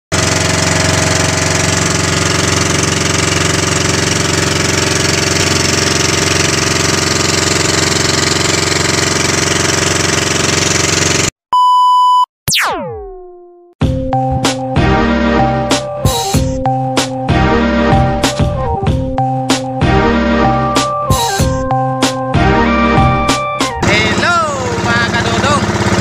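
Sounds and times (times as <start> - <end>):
boat engine running: 0.1 - 11.3, 14.2 - 26.0
test-tone beep: 11.5 - 12.3
falling pitch sweep: 12.5 - 13.7.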